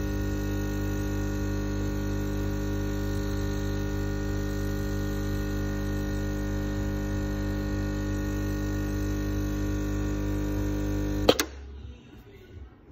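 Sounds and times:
espresso machine pump buzzing: 0:00.0 - 0:11.6
espresso machine switch click: 0:11.0 - 0:11.6.

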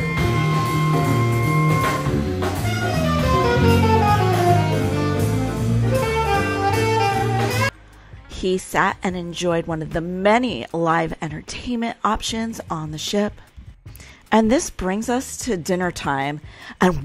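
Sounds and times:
falling run of horn notes: 0:00.0 - 0:07.7
small jazz band playing: 0:00.0 - 0:07.7.

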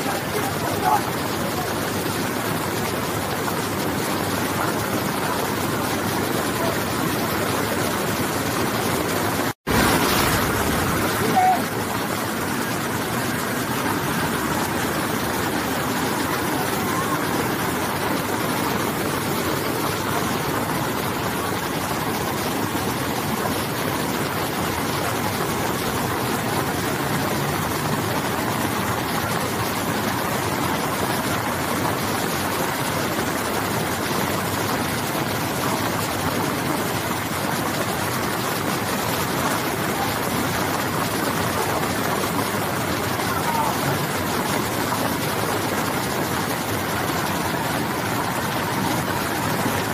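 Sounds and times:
floodwater rushing: 0:00.0 - 0:49.9
heavy rain: 0:00.0 - 0:49.9.

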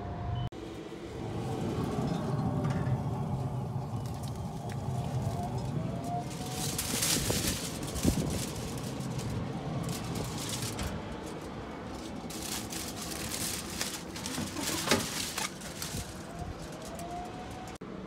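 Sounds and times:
low steady rumble: 0:00.6 - 0:17.8
aluminium foil crinkling: 0:04.0 - 0:17.8.

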